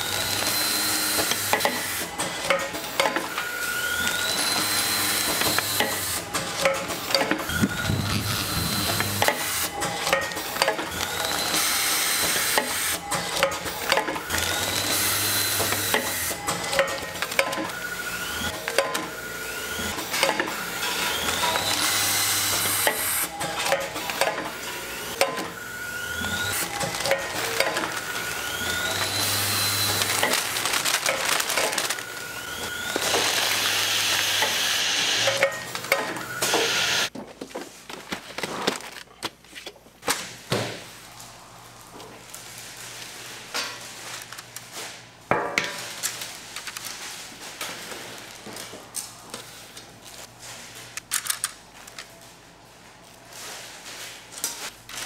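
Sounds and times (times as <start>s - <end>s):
machinery clicks and clatter: 0.0s - 17.8s, 19.8s - 25.5s, 26.2s - 32.1s
machinery whine: 7.5s - 9.6s, 31.0s - 37.1s.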